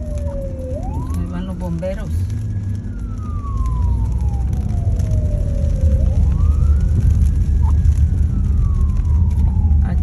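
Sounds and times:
emergency siren wailing: 0.0 - 10.0
road traffic rumble: 0.0 - 10.0.

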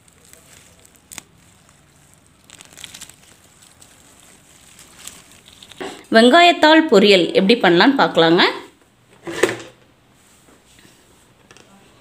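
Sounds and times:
plant stems snapping: 0.0 - 6.0
rustling and crackling of leaves: 0.0 - 6.1.

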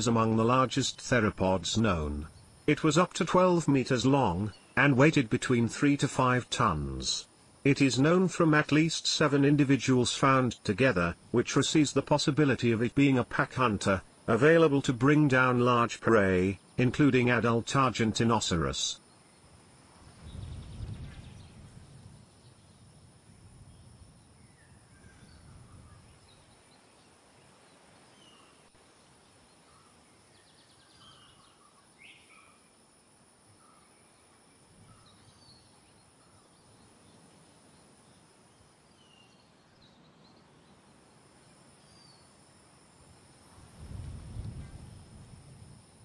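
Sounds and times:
high insect hum: 0.0 - 46.0
bird chirps: 29.5 - 32.6.

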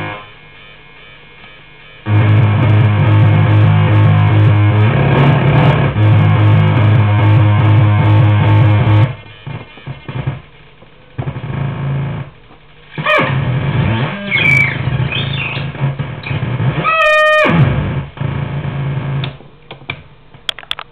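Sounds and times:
harsh distorted synth buzzing: 0.0 - 19.3
clicks: 19.2 - 20.9.

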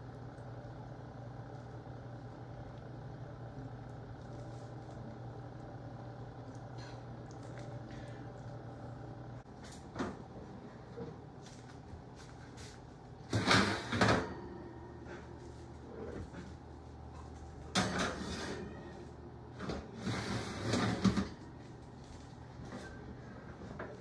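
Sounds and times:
faint steady hum: 0.0 - 24.0
metal rack and pan scraping: 13.3 - 14.4, 17.8 - 18.8, 19.9 - 21.3.

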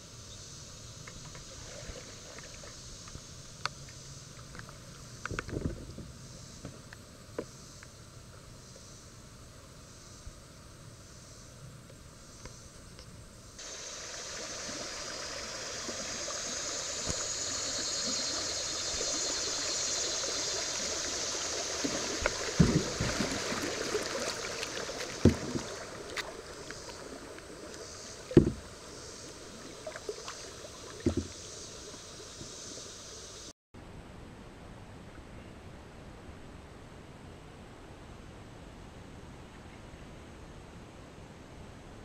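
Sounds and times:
rushing water hissing: 13.6 - 33.5
dull knocks: 22.6 - 23.4, 28.3 - 28.7.

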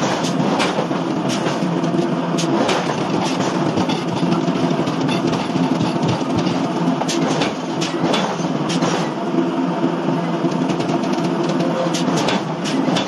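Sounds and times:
forging machinery humming: 0.0 - 13.0
sharp metal clanks: 2.4 - 4.4.

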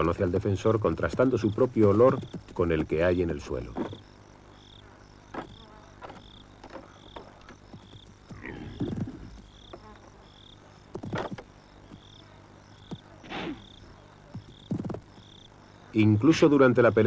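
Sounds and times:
insect chirping: 0.0 - 17.0
antelopes sparring: 0.9 - 4.1, 5.2 - 15.4.

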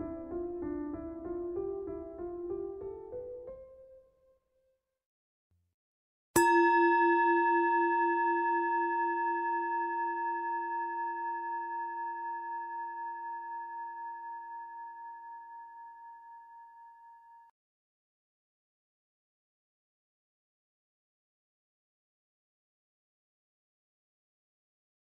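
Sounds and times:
singing bowl ringing: 6.4 - 17.5.

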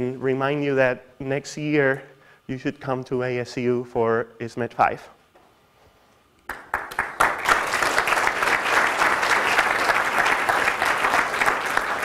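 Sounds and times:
audience applauding: 6.5 - 12.0.

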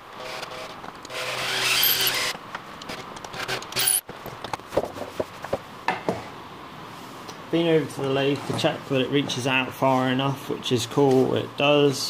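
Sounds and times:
cordless drill drilling into wood: 1.1 - 2.3.

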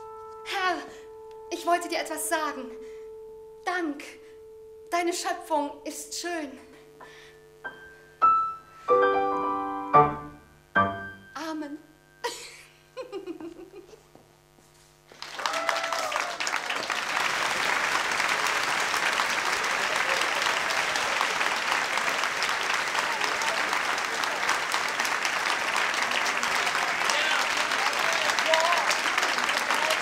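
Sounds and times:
piano notes: 0.0 - 11.6
audience applause: 15.1 - 30.0.

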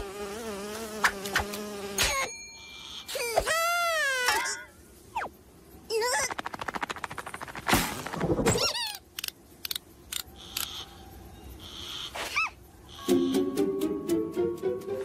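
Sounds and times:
cartoon character squeaky voice: 3.1 - 4.7, 8.5 - 9.1
music: 13.0 - 15.0.

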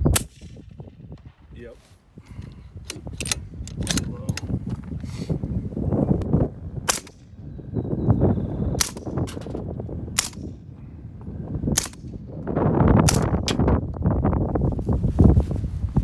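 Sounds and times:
suppressed gunshots: 0.1 - 1.5, 6.8 - 7.4, 8.8 - 10.6, 11.7 - 12.2.

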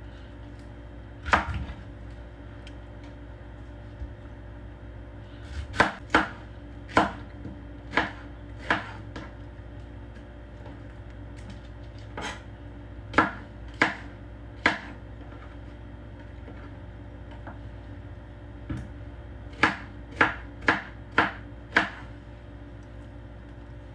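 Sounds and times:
knife chopping on plastic board: 5.5 - 9.4, 13.1 - 15.4, 19.5 - 22.1.

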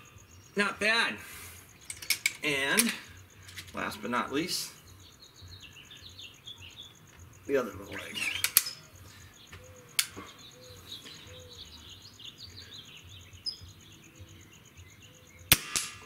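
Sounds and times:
songbirds chirping: 0.0 - 16.0
air rifle clicks: 1.8 - 3.8, 10.0 - 10.2
pulsing insect buzz: 5.7 - 9.1.

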